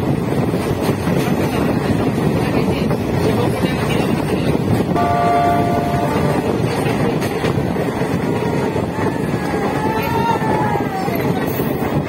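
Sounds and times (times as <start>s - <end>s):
train running rumble: 0.0s - 12.0s
wind noise on microphone: 0.0s - 12.0s
train horn steady tone: 5.0s - 7.0s.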